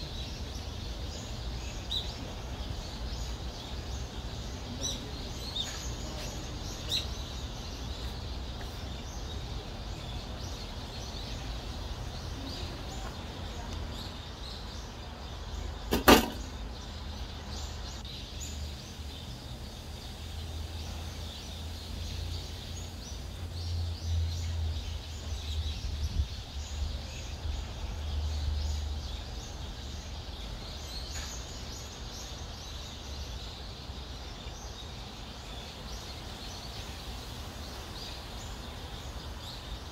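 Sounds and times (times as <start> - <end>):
sharp loud knock: 15.9 - 16.5.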